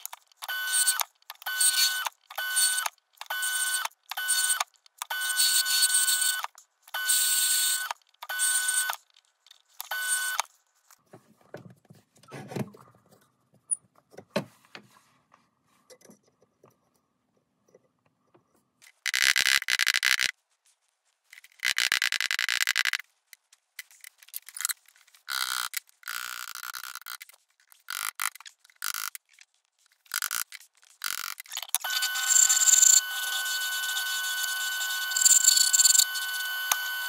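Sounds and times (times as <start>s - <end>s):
lathe chisel scraping wood: 31.3s - 37.0s.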